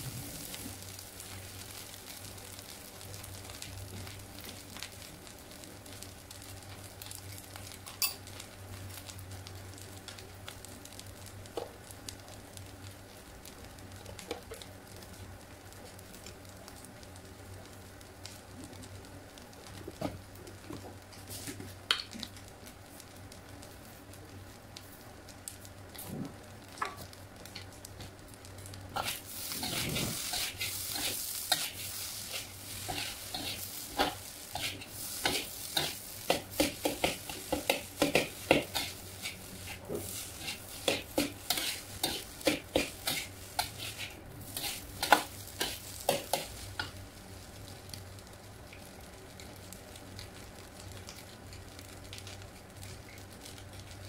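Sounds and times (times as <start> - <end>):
low steady hum: 0.0 - 54.0
rice sizzling in a wok: 0.0 - 54.0
metal spatula scraping a wok: 29.0 - 36.0, 36.6 - 46.5.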